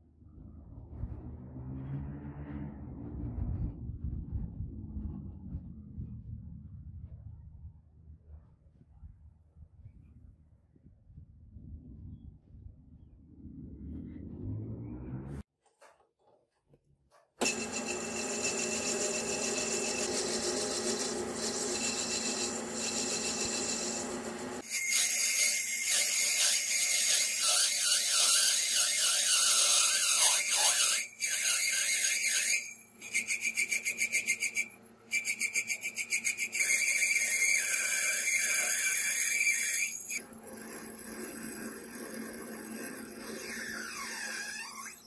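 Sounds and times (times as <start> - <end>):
metal lathe running: 17.4 - 24.6, 36.9 - 44.2
cutting tool screeching on metal: 17.4 - 45.0.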